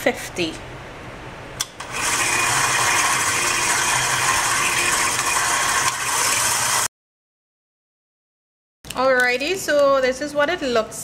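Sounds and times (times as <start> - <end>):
stand mixer whine: 1.8 - 6.9.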